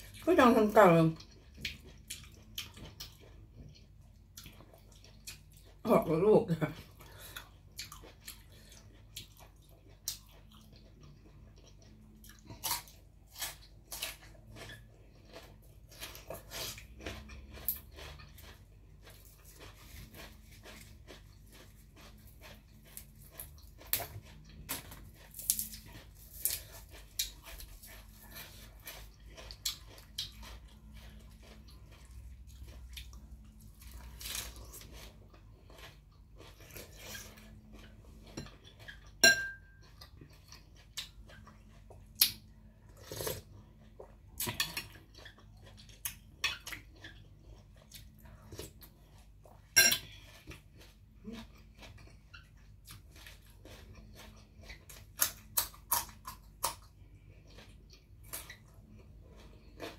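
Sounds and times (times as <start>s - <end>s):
chewing: 1.1s - 5.8s, 6.7s - 59.9s
metal spoon clinking on plate: 39.2s - 39.7s.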